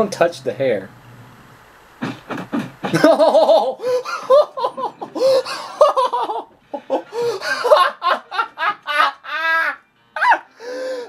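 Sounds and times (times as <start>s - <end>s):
man laughing hard: 2.0s - 10.5s.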